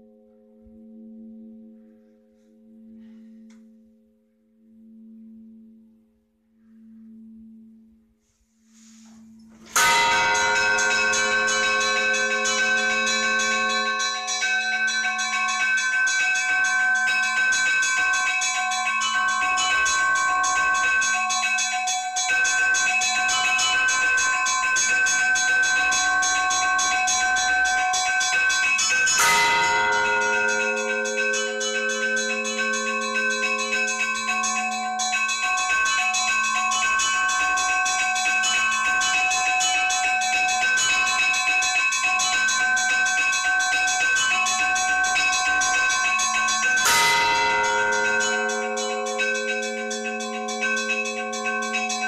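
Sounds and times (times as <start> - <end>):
low bell note: 9.6 - 15.7, 29.1 - 35.2, 46.8 - 51.9
full peal of church bells: 9.7 - 52.0.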